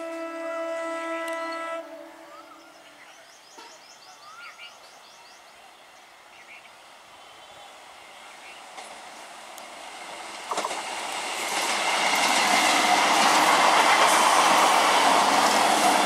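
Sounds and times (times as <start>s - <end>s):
train horn: 0.0s - 3.0s
train running noise: 6.1s - 16.0s.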